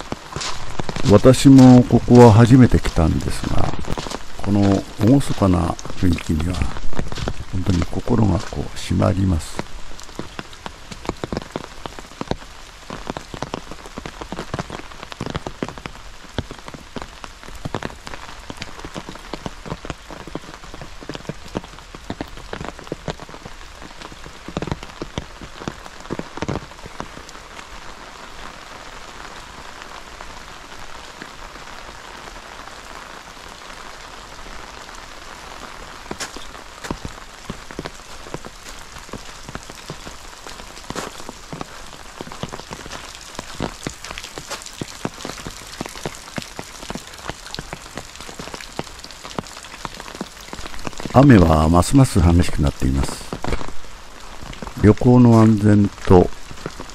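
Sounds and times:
steady rain falling: 0.0s - 56.9s.

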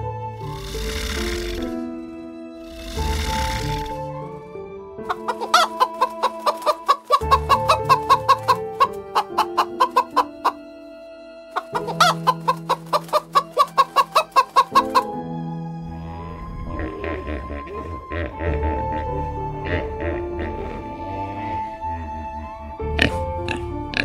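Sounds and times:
soft background music: 0.0s - 24.0s
chickens clucking: 5.1s - 10.7s, 11.6s - 15.2s.

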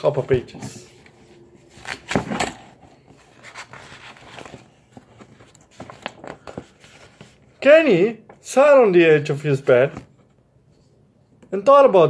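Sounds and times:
book pages rustling: 0.1s - 7.6s, 9.4s - 11.0s.

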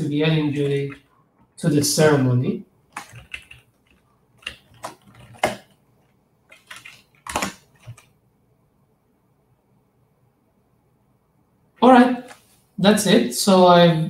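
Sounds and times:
keyboard typing: 0.3s - 1.6s, 2.9s - 8.2s.

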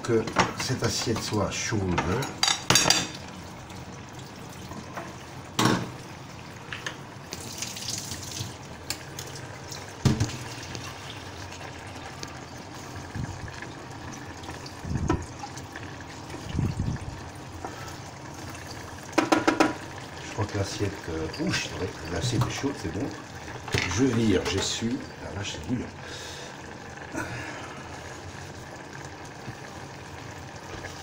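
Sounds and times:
tap water running onto plate: 6.6s - 25.8s.

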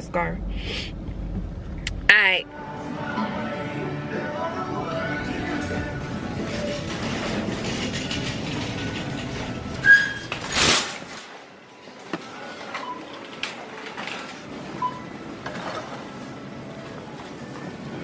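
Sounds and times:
shopping cart rolling and rattling: 5.5s - 16.4s
shopping cart metal clank: 5.6s - 11.4s
cart wheel squeaks: 6.2s - 10.7s, 12.3s - 16.0s.

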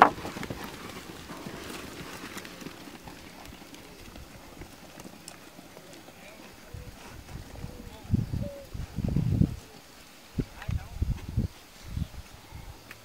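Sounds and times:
sheep hooves trotting on dirt: 0.0s - 8.2s.

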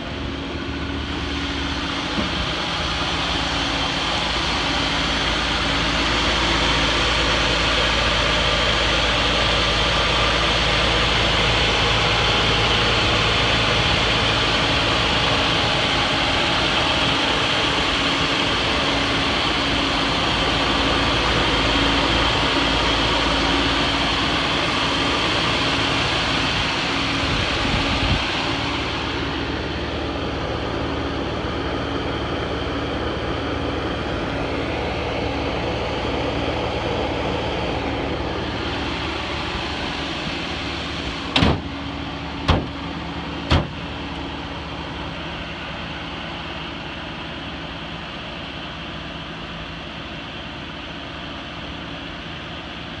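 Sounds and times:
car engine idling: 0.0s - 53.0s
sharp knocks: 41.3s - 41.8s, 42.4s - 42.8s, 43.5s - 43.8s.

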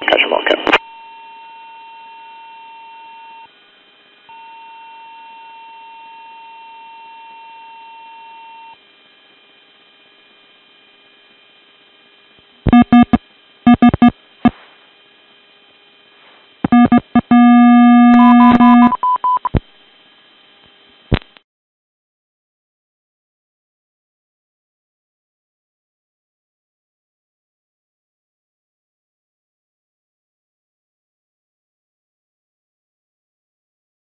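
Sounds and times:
rapid beeping: 12.7s - 14.1s, 16.7s - 19.6s
steady high beep: 12.7s - 14.1s, 16.7s - 19.6s
held buzzing tone: 12.7s - 14.6s, 16.6s - 19.6s
sharp click: 21.1s - 21.4s.

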